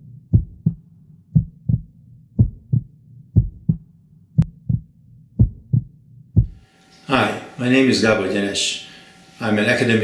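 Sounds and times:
heartbeat thumps: 0:00.0 - 0:06.6
low steady hum: 0:00.0 - 0:10.0.

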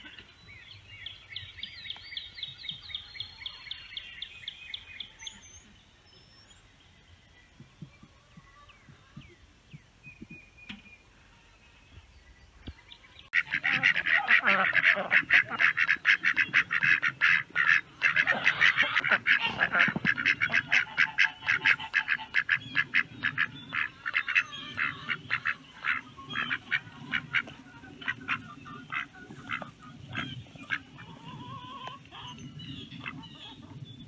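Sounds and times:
geese honking: 0:13.2 - 0:33.8.

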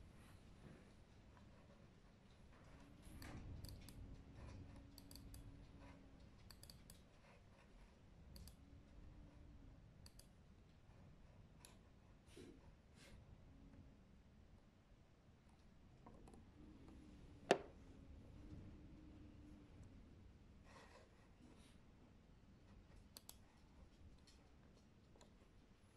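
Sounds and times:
computer mouse clicks: 0:03.0 - 0:07.4, 0:08.3 - 0:08.6, 0:10.0 - 0:10.4, 0:23.0 - 0:23.5
laptop keyboard typing: 0:06.4 - 0:07.1.

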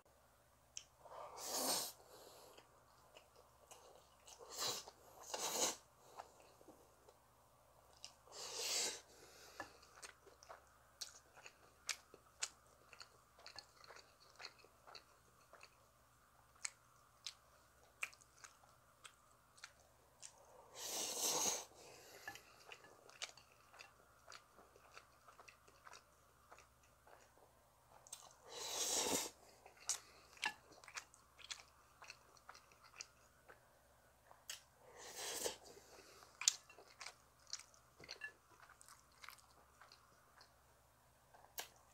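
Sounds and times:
close chewing of noodles: 0:07.9 - 0:33.7, 0:34.3 - 0:40.6.

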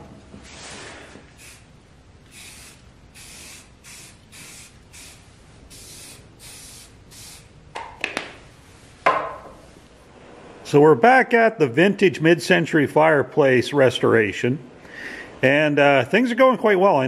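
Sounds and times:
aerosol spray can hissing: 0:01.3 - 0:01.7, 0:02.3 - 0:07.5
sharp knocks: 0:09.0 - 0:09.6.

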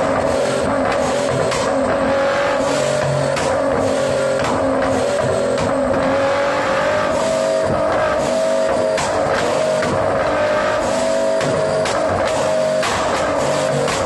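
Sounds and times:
car engine revving steadily: 0:00.0 - 0:14.0.

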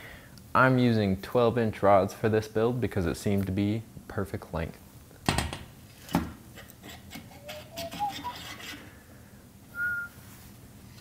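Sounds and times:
person whistling: 0:07.4 - 0:08.4, 0:09.7 - 0:10.2.

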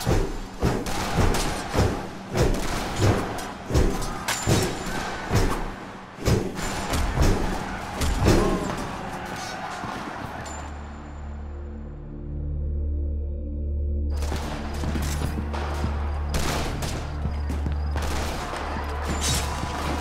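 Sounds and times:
heavy thumps of blows: 0:00.0 - 0:10.5
dramatic music: 0:00.0 - 0:20.0
men shouting: 0:06.7 - 0:10.9, 0:18.2 - 0:20.0.

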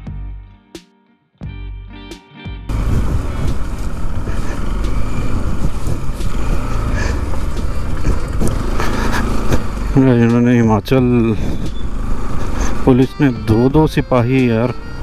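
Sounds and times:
background music: 0:00.0 - 0:03.7, 0:12.2 - 0:15.0
motorcycle engine running: 0:02.7 - 0:15.0
road noise: 0:02.7 - 0:15.0.

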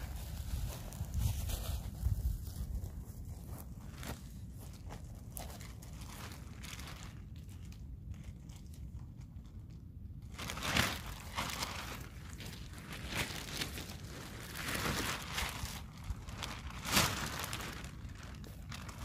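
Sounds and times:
footsteps on dry pine needles: 0:00.0 - 0:07.2, 0:10.4 - 0:19.0
plastic sheet crinkling: 0:10.3 - 0:19.0.

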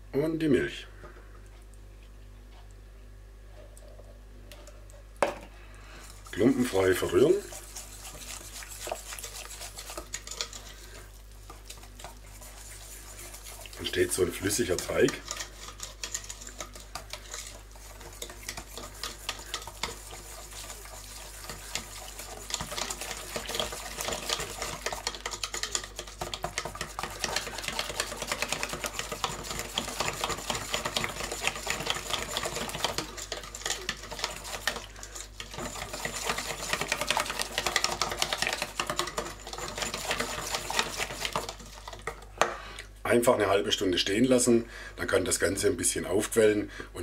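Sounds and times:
wire whisk beating batter in bowl: 0:06.0 - 0:42.3.

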